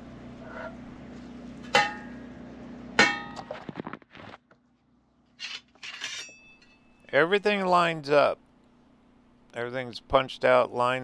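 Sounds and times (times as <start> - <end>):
metallic clangs with ring: 3.0 - 3.4, 5.8 - 7.1.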